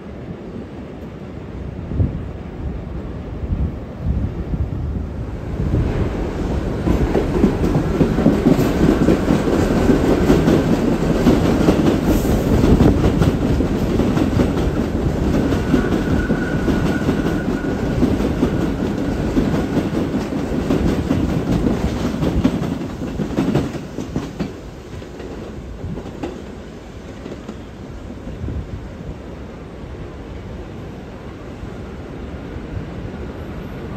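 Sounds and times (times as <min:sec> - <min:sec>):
elevated train wheels clattering: 0:05.3 - 0:28.4.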